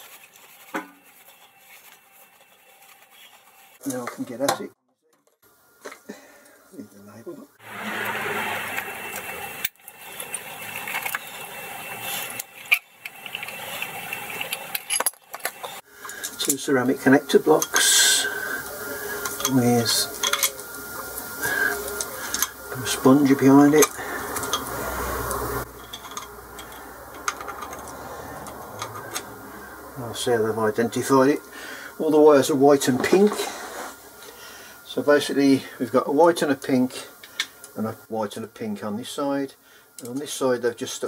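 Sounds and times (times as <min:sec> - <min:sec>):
cloth rubbing on metal cover: 0:00.0 - 0:04.0
rustling: 0:00.0 - 0:04.0.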